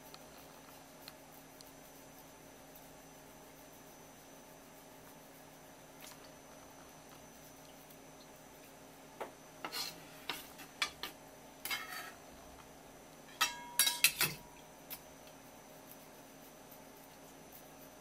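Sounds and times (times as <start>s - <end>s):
knife blade ringing: 13.4s - 14.5s.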